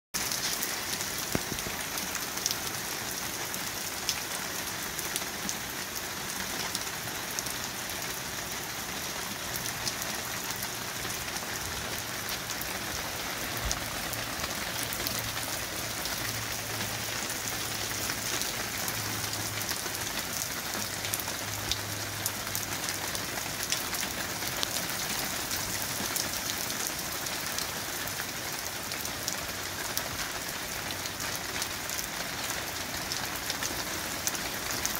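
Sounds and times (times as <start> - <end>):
raindrop ticks: 0.2 - 2.8, 9.6 - 27.8
heavy rain on pavement: 0.2 - 34.9.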